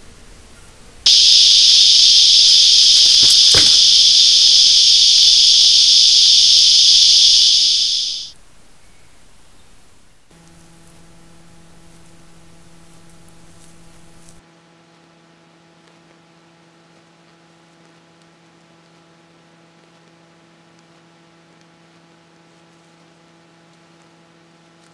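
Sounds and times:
faint hiss: 1.1 - 10.2
electrical hum: 1.1 - 14.4.

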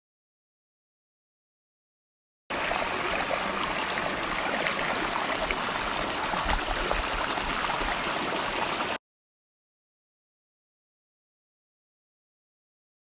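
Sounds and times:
stream water rushing over rock: 2.5 - 9.0.

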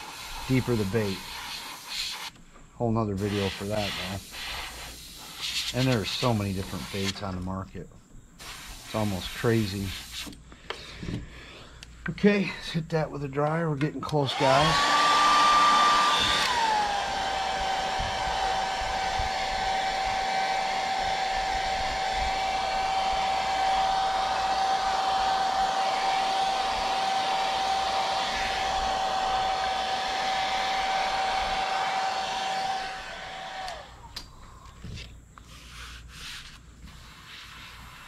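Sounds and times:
hair dryer whining: 14.2 - 34.0
hair dryer switch off: 14.3 - 34.0.

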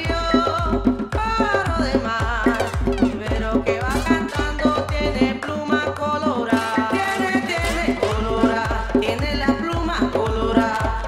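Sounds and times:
kick drum beat: 0.0 - 5.4, 7.5 - 11.0
electronic dance music: 2.2 - 5.2.

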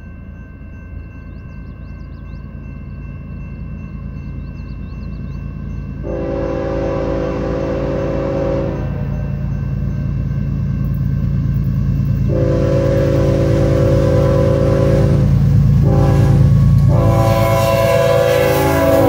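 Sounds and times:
locomotive engines rumbling: 0.0 - 19.0
locomotive air horn blasts: 6.0 - 9.2, 12.3 - 19.0.

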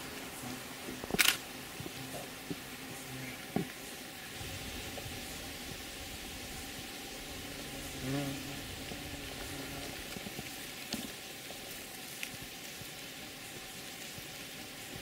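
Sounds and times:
faint hiss: 0.0 - 15.0
small sharp clicks: 1.1 - 1.4.

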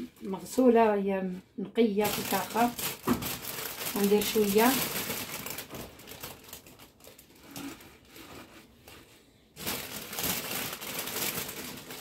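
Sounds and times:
spinach leaves rustling: 2.0 - 8.2, 9.6 - 12.0
plastic bag crinkling: 2.0 - 12.0.

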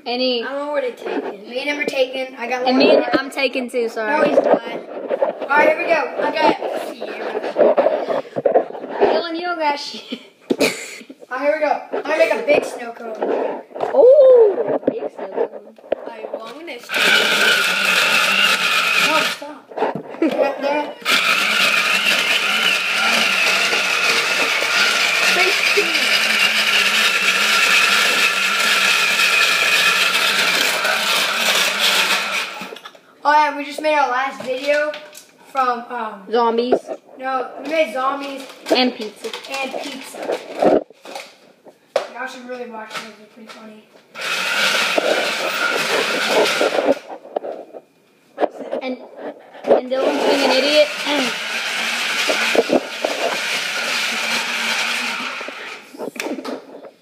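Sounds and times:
blender crushing ice: 16.8 - 19.4, 21.0 - 32.8, 44.2 - 47.1, 50.0 - 55.9.

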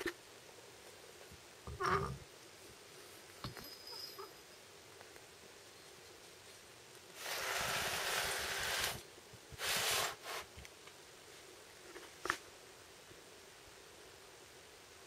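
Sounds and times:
metal tool scraping on tabletop: 7.2 - 9.0.

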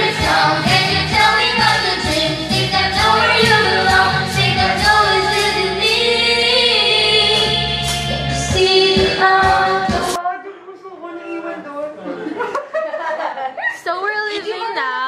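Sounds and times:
girls singing together: 0.0 - 7.6, 8.5 - 10.2
karaoke backing track with beat: 0.0 - 10.2.

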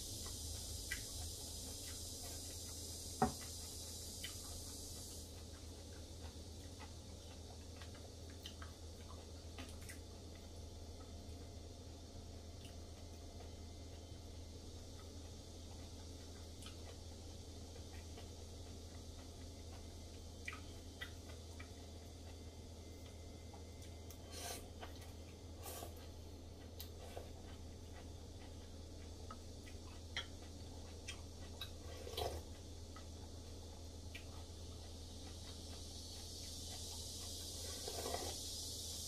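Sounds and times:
steady low hum: 0.0 - 39.0
person chewing: 0.2 - 11.2, 14.9 - 39.0
person slurping: 24.2 - 24.8, 25.6 - 26.1, 31.8 - 32.4, 37.4 - 38.6.

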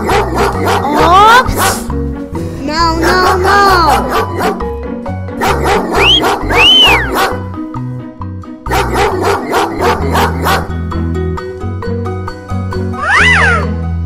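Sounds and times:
children's background music: 0.0 - 14.0
cartoon sound effects: 6.0 - 7.2, 12.9 - 13.8.

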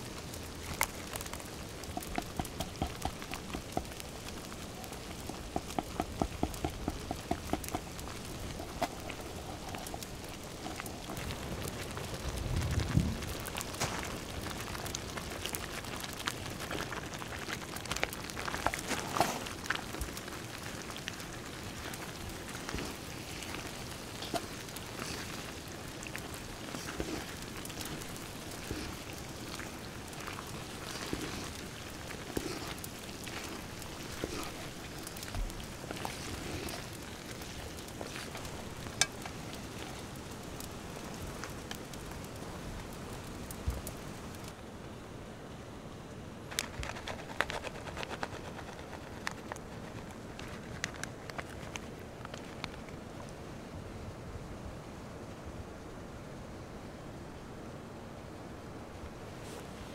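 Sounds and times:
sauce simmering in a pot: 0.0 - 44.6
wood fire crackling: 0.0 - 45.0, 46.4 - 54.5
wet sloshing of pasta: 13.4 - 41.6.

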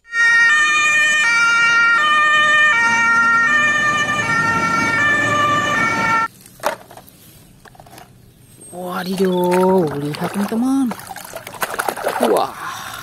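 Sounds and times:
two-tone fire engine siren: 0.0 - 6.3
truck and traffic rumble: 1.2 - 11.8.

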